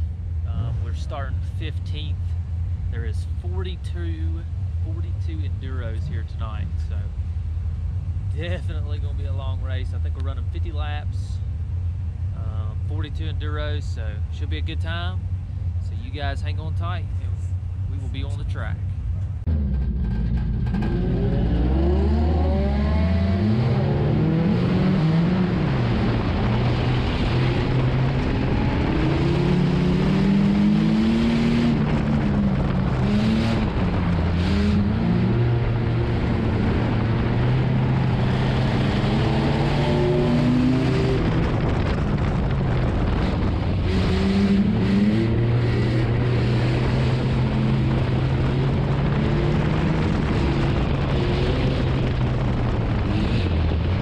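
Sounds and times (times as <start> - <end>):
other race car engines: 0.0 - 54.0
race car engine revving: 19.4 - 54.0.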